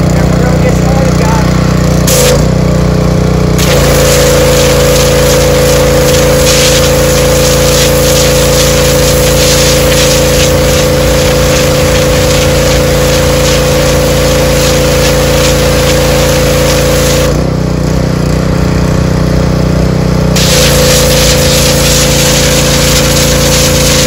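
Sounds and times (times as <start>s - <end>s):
pressure washer engine running: 0.0s - 24.0s
high-pressure water jet hissing: 2.0s - 2.5s, 3.6s - 17.4s, 20.4s - 24.0s.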